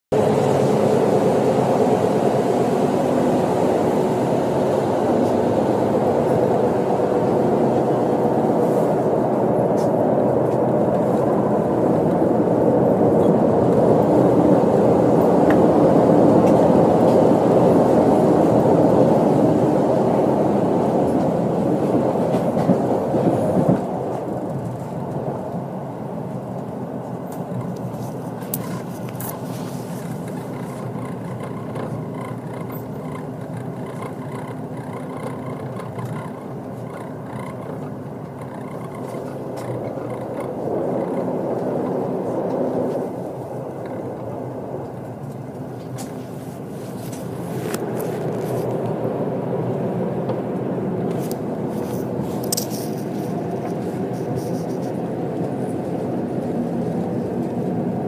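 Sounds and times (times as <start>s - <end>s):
train wheels on rails: 0.1s - 58.0s.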